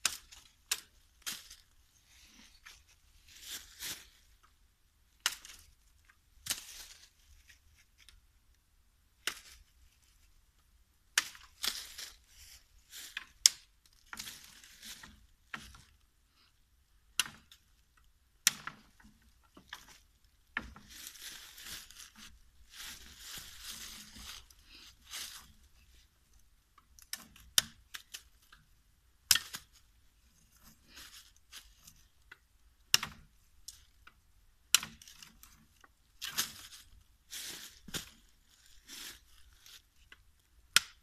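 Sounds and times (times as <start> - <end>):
dry leaves crunching underfoot: 0.0 - 4.3, 11.6 - 13.3, 14.1 - 15.1, 20.8 - 25.8, 36.2 - 39.9.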